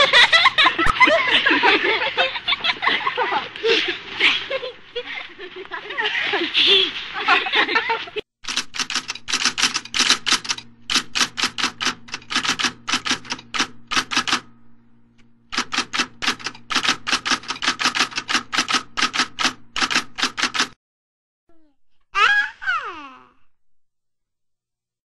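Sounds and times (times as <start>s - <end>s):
steady low hum: 0.0s - 20.5s
typewriter keys clacking: 8.4s - 14.4s, 15.5s - 20.8s.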